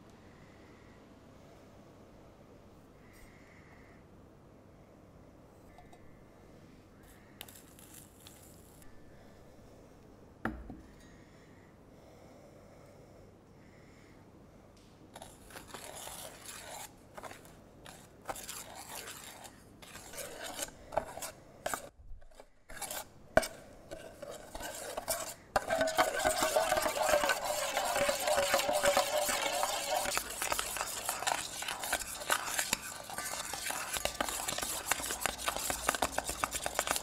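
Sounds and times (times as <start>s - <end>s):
metal spoon scraping a steel pot: 15.2s - 37.0s.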